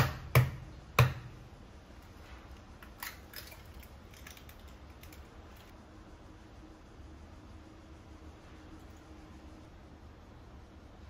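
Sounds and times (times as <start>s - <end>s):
eggshell clicking and crackling: 2.0s - 5.8s.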